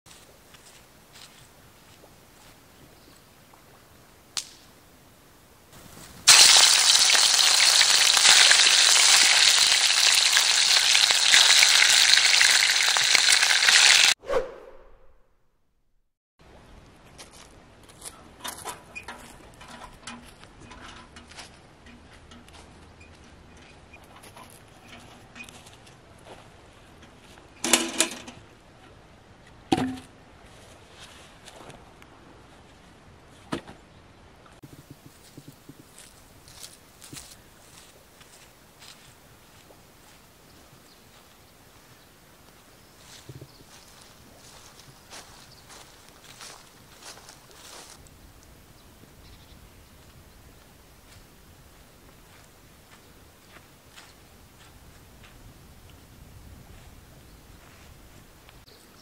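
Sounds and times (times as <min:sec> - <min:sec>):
footsteps on dry grass: 0:00.1 - 0:02.7, 0:17.2 - 0:18.2, 0:30.4 - 0:31.9, 0:34.6 - 0:48.6, 0:49.9 - 0:58.6
fish frying in hot oil: 0:06.3 - 0:14.1
metal container clanking on ground: 0:27.6 - 0:28.4.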